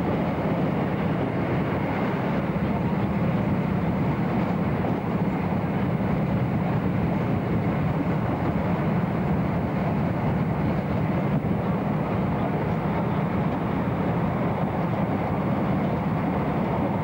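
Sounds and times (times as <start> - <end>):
moving train rumble: 0.0 - 17.0.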